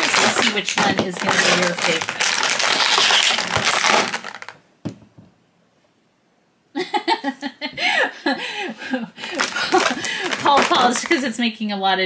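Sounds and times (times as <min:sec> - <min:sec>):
plastic packaging crackling: 0:00.0 - 0:04.6, 0:09.2 - 0:11.4.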